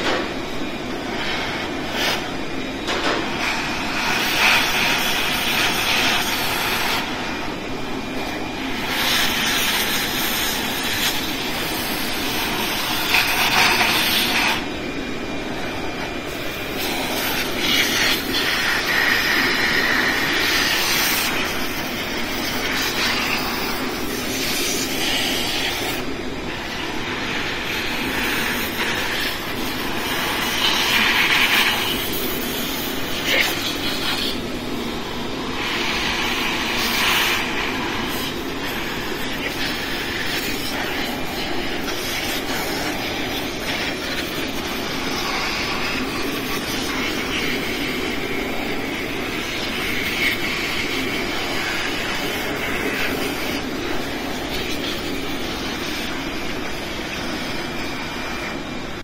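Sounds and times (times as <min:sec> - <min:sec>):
shop vacuum sucking air: 0:00.0 - 0:59.0.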